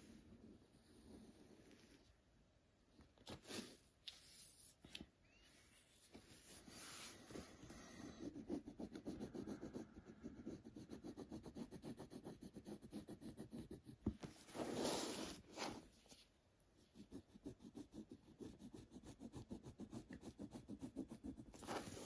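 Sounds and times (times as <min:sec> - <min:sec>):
pencil scratching on paper: 0:06.4 - 0:15.8, 0:16.8 - 0:22.0.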